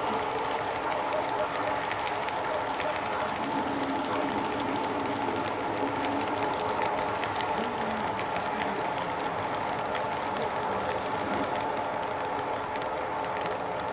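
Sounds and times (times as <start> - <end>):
rapid light clicks: 0.0 - 13.9.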